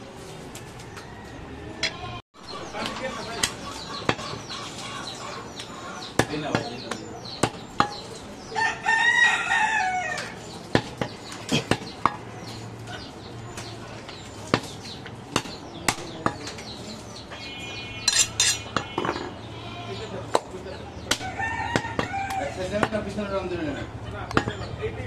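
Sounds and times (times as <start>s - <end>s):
rooster crowing: 8.5s - 10.4s, 21.2s - 22.7s.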